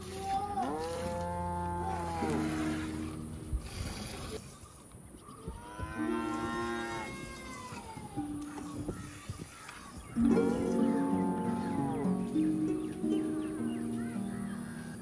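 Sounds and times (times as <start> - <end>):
cow mooing: 0.0 - 2.9, 5.7 - 7.9, 10.4 - 12.0.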